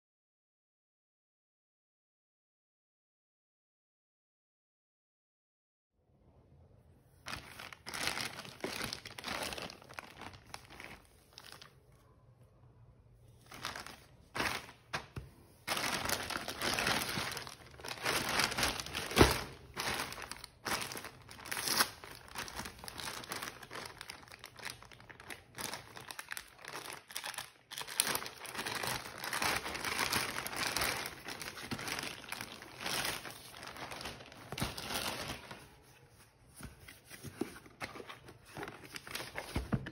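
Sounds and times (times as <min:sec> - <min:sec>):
plastic bag crinkling and tearing: 0:07.2 - 0:11.7, 0:13.4 - 0:35.7, 0:37.9 - 0:39.6.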